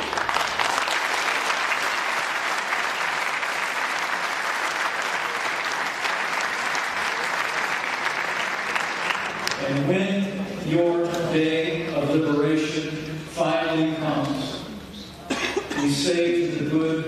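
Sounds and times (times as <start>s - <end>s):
large audience applauding: 0.0s - 9.6s.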